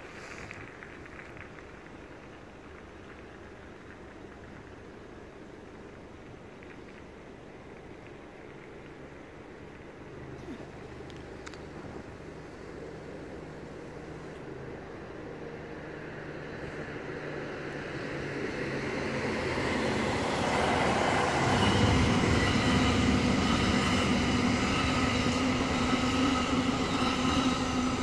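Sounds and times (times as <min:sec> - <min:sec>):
train wheels rumbling on rail: 0:00.0 - 0:28.0
train whining tones: 0:10.4 - 0:28.0.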